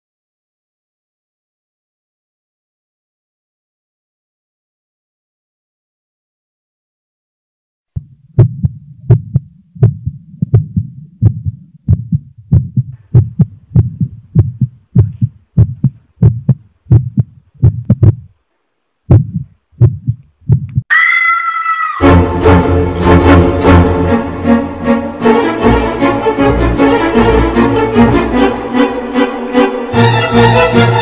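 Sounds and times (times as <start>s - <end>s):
heartbeat thumps: 8.0s - 18.4s, 19.1s - 20.9s.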